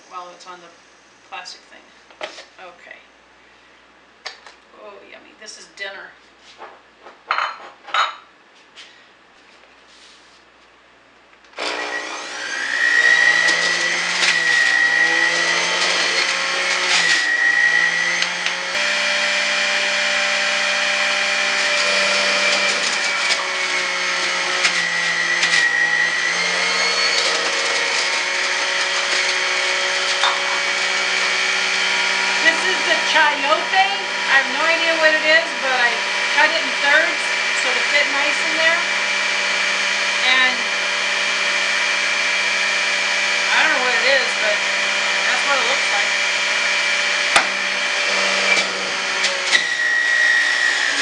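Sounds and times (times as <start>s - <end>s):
electric juicer motor running: 11.6s - 51.0s.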